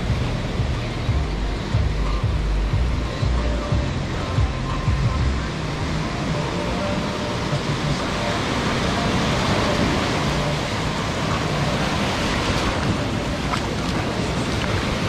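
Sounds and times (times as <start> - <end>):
surf washing up sand: 3.0 - 15.0.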